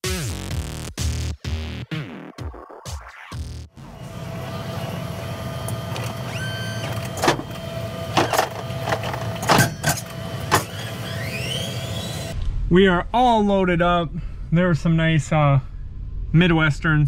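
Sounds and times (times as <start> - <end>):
rising motor whine: 3.7 - 9.4, 10.0 - 12.6
forklift motor hum: 3.7 - 12.4
knocks and clanks: 5.7 - 10.9.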